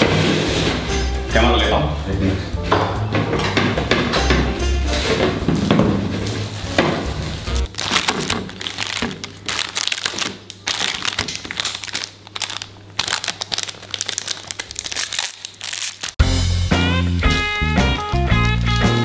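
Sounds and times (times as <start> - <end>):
music: 0.0 - 7.7, 16.2 - 19.0
plastic wrappers crinkling: 7.4 - 16.2.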